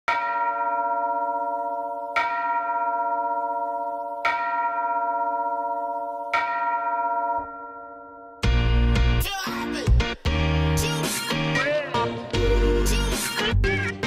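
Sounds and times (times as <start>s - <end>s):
bell chime ringing: 0.1s - 8.6s.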